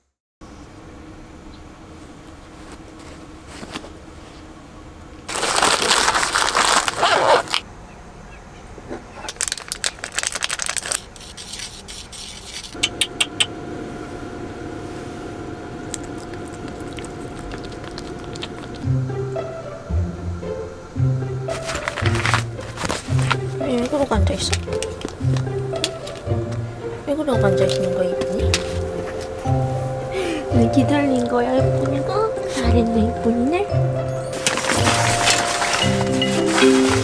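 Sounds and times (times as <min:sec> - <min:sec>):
paper packet rustling: 0:05.3 - 0:07.6, 0:09.3 - 0:12.8, 0:15.9 - 0:18.9, 0:21.5 - 0:26.6, 0:27.4 - 0:29.6, 0:34.1 - 0:37.0
paper packet tearing open: 0:05.3 - 0:07.6, 0:09.3 - 0:12.8, 0:16.5 - 0:18.9, 0:21.5 - 0:26.3, 0:34.3 - 0:37.0
steady hum with faint whine: 0:11.1 - 0:37.0.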